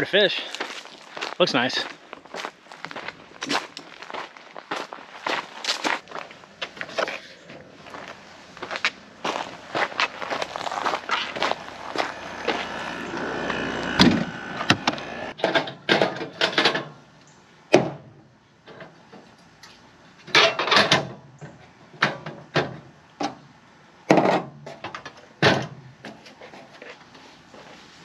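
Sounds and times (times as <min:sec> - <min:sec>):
footsteps on gravel: 0:00.2 - 0:15.4
knocks and metal clatters: 0:10.3 - 0:17.0, 0:20.3 - 0:23.4.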